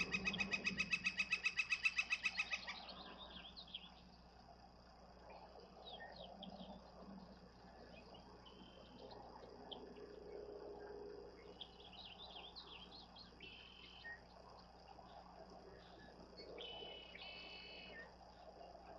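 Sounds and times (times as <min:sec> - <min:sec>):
small birds chirping: 0:00.0 - 0:04.3, 0:11.4 - 0:18.6
low steady hum: 0:00.0 - 0:18.9.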